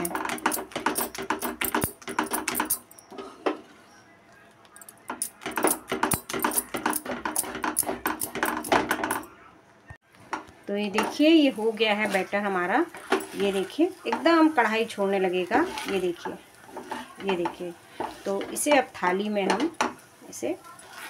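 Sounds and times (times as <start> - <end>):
wooden spatula scraping a pan: 10.8 - 21.0.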